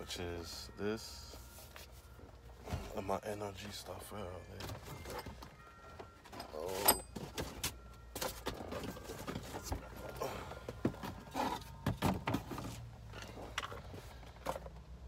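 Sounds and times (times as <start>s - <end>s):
objects and packaging rummaged: 0.0s - 15.0s.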